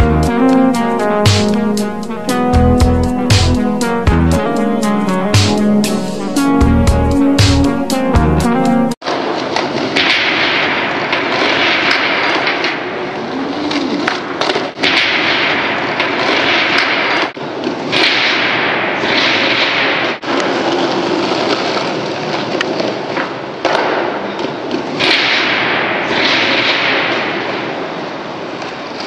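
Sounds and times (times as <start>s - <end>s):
skateboard wheels rolling on concrete: 0.0s - 15.0s, 15.7s - 18.0s, 19.0s - 29.0s
skateboard clacking: 20.3s - 25.6s.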